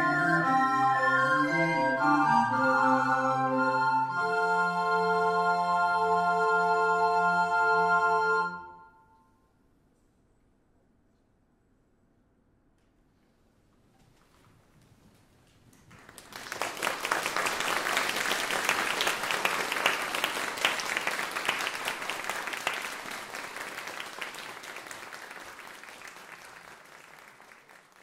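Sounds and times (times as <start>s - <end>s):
audience applauding: 15.7s - 28.0s.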